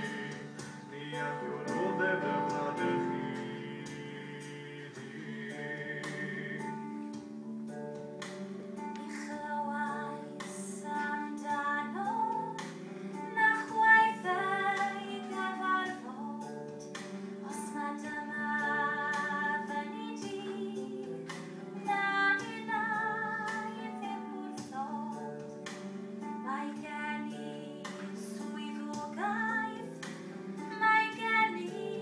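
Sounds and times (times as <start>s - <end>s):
woman singing: 8.9s - 32.0s.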